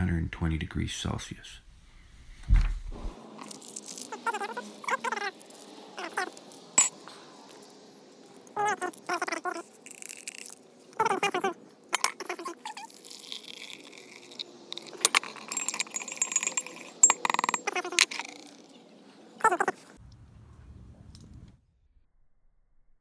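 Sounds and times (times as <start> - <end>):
short squeaky calls: 3.5 - 7.7, 8.4 - 20.0
sharp clinks: 6.0 - 7.1, 11.9 - 18.8
water poured into a mug: 12.3 - 16.9.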